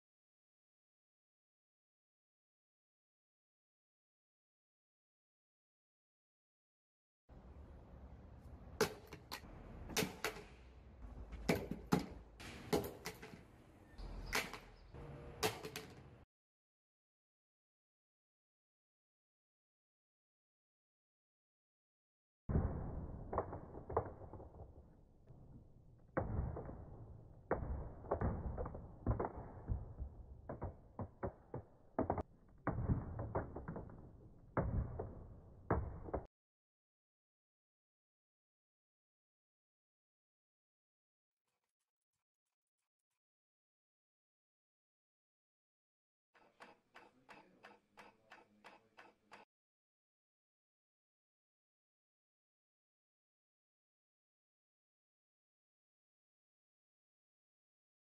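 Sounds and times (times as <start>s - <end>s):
steel ball thudding on wood: 11.3s - 13.5s.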